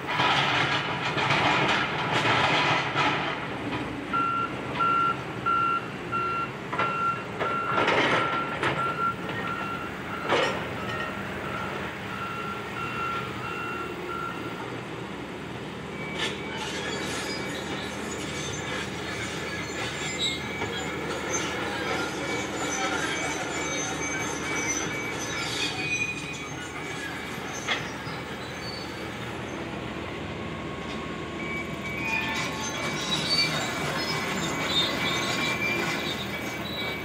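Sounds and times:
metallic squeal: 16.0 - 29.8, 31.4 - 37.0.

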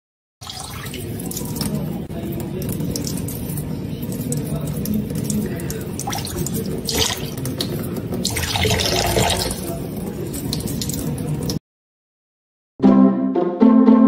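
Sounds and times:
tap water splashing into metal bowl: 0.4 - 9.7.

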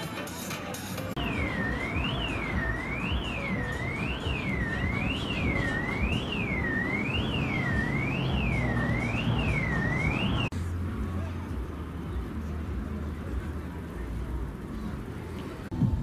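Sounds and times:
car alarm siren: 1.2 - 10.5.

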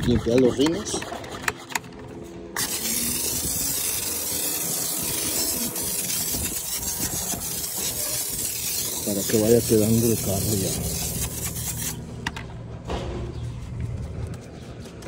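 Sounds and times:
foam sprayer hissing: 2.6 - 12.0.

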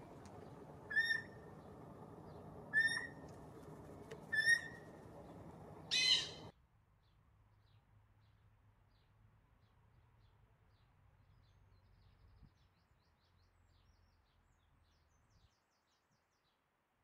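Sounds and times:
jay calling: 0.0 - 6.5.

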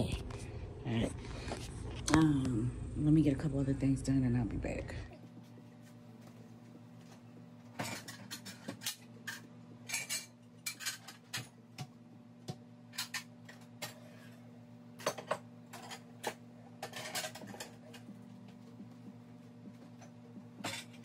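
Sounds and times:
steady low hum: 0.0 - 21.0
dishes and cutlery clattering: 7.7 - 11.6, 15.0 - 18.1, 20.6 - 21.0.

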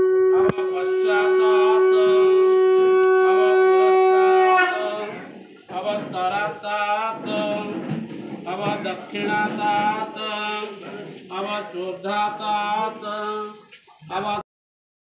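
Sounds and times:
conch shell blown: 0.0 - 5.3
voices: 0.4 - 14.4.

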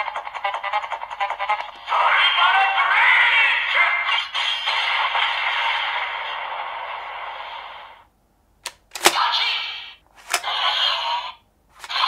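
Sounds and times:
plastic toy clicks: 8.6 - 9.2, 10.2 - 10.5
toy electronic sound effect: 9.0 - 12.0.

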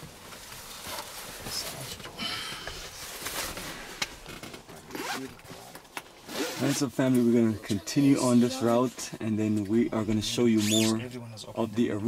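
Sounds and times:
rustling and scraping: 0.0 - 7.5.

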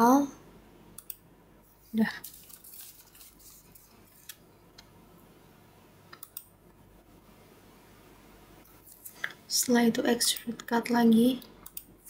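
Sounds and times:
computer mouse clicks: 1.0 - 1.2, 6.1 - 6.5, 11.4 - 11.9.

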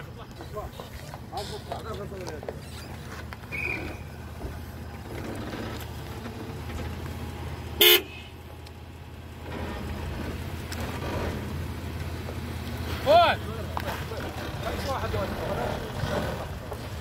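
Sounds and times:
suv engine running low: 0.0 - 17.0
short loud horn toot: 7.8 - 8.3.

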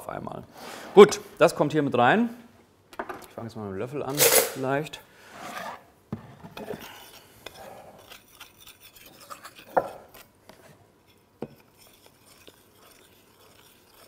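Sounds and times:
spoon stirring batter in a bowl: 6.6 - 14.0.

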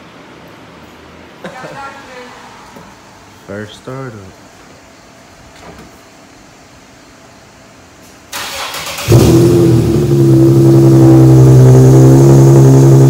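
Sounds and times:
engine starter cranking: 8.3 - 9.6
car engine idling: 8.4 - 13.0.

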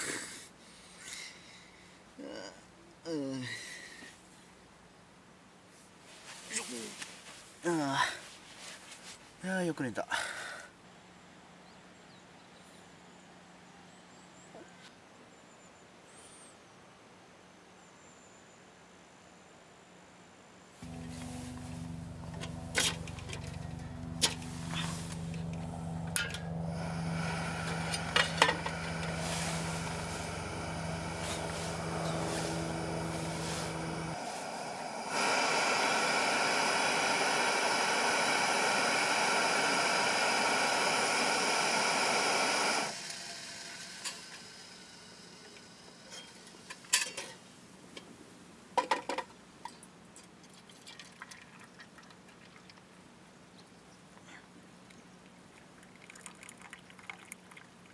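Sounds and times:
loud rushing hiss: 20.8 - 46.9
steady low hum: 20.8 - 47.9.

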